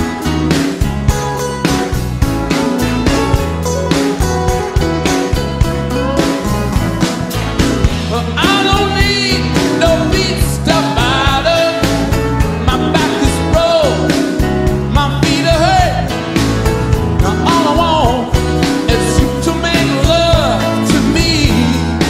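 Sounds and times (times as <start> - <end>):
rock band playing live: 0.0 - 22.0
man singing lead vocal: 7.9 - 16.4, 17.2 - 22.0.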